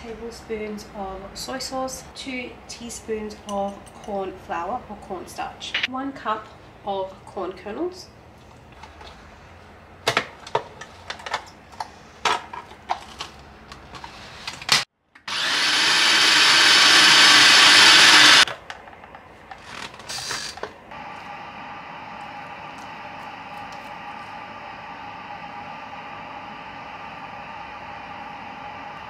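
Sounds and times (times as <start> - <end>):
food processor motor chopping: 15.2 - 18.5.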